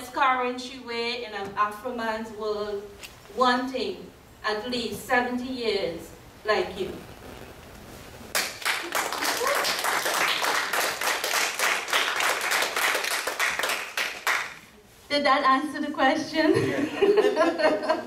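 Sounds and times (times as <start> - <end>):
audience applauding: 8.3 - 14.6.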